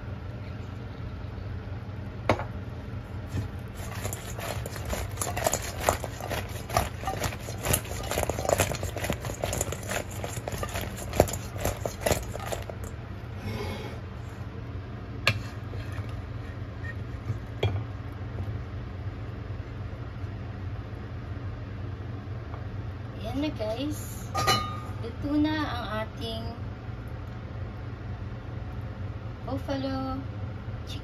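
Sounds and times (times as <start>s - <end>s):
steady low hum: 0.0s - 31.0s
wet slaps in a metal bowl: 3.4s - 12.9s.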